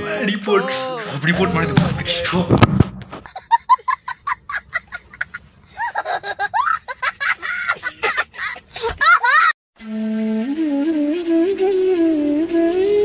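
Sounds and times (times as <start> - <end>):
child laughing with high squeals: 4.2 - 9.6.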